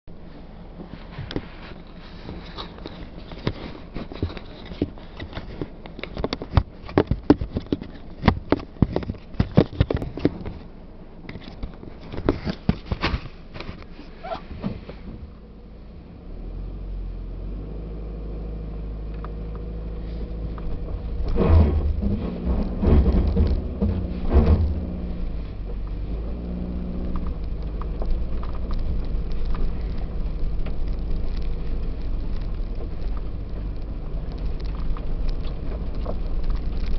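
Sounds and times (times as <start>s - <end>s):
car engine drone: 0.1s - 36.9s
car rattling over bumps: 0.1s - 36.9s
tyre rumble: 19.7s - 36.9s.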